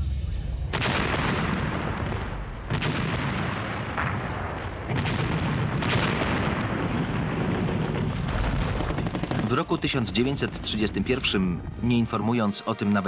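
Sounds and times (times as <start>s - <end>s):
explosions: 0.6s - 11.8s
gunfire: 0.7s - 10.4s
continuous battle din: 0.7s - 12.2s.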